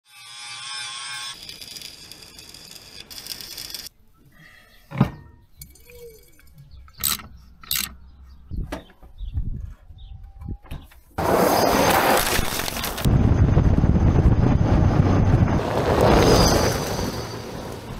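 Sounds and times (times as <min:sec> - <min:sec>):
electric welding crackling: 0:00.6 - 0:03.9
metallic clicks and knocks: 0:05.1 - 0:08.0.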